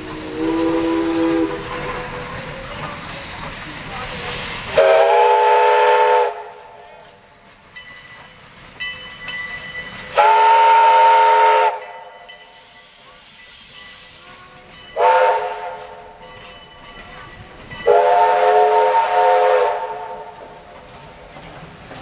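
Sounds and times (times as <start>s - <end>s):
train rolling by: 0.0s - 22.0s
steam locomotive chime whistle: 0.2s - 2.2s, 4.4s - 6.6s, 8.8s - 16.9s, 17.8s - 20.4s.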